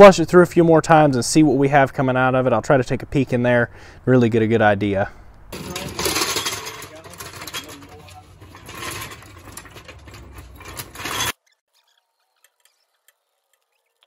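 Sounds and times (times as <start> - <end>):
floor jack rattling on asphalt: 5.5 - 11.4.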